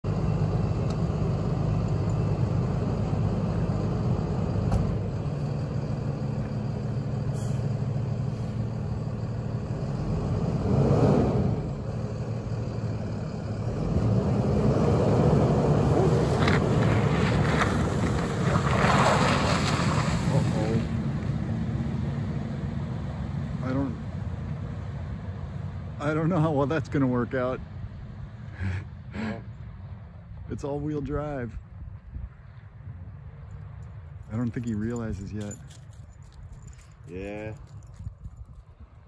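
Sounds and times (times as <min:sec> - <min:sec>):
truck engine running: 0:00.0 - 0:18.4.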